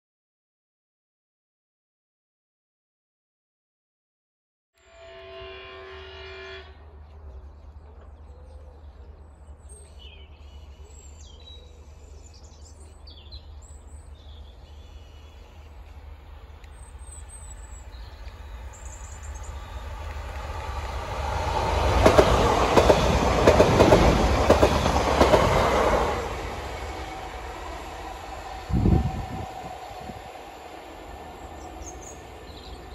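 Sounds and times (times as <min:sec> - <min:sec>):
train passing at speed: 0:11.9 - 0:32.9.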